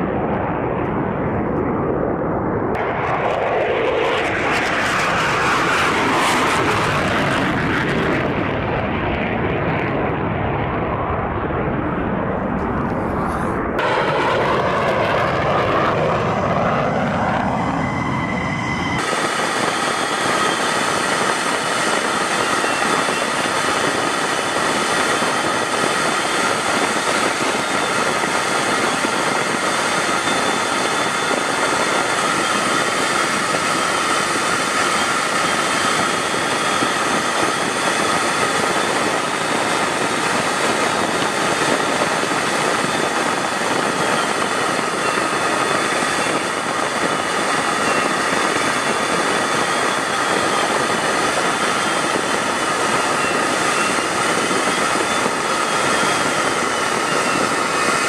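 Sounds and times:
high whine: 0.0 - 58.0
jet engine in flight: 0.0 - 58.0
rushing air: 1.1 - 8.7, 11.6 - 58.0.

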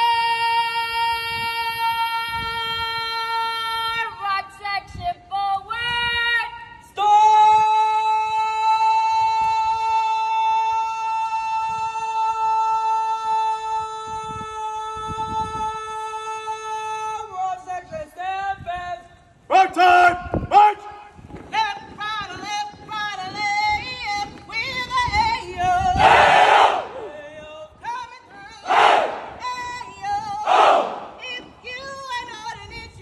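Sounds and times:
person singing military cadence: 28.2 - 32.5.

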